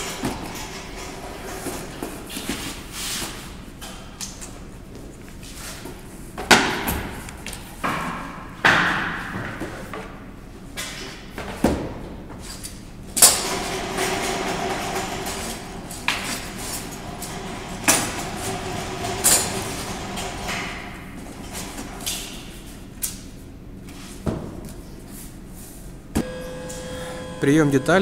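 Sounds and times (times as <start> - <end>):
steady hum: 25.8 - 28.0.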